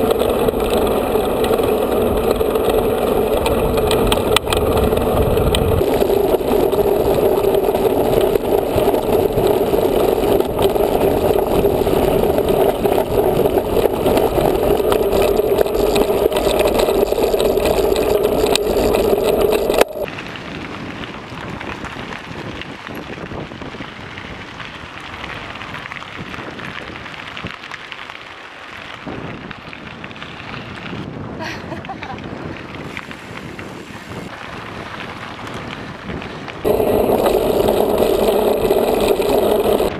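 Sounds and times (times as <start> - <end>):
strong hum: 0.0 - 20.1, 36.6 - 39.9
wind rushing: 36.6 - 39.9
tyres rushing: 36.7 - 39.9.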